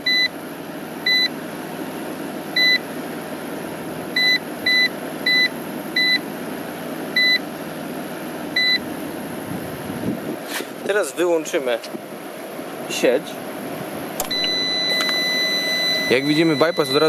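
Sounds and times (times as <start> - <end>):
steady fan-like noise: 0.1 - 17.0
short key-press beeps: 14.2 - 17.0.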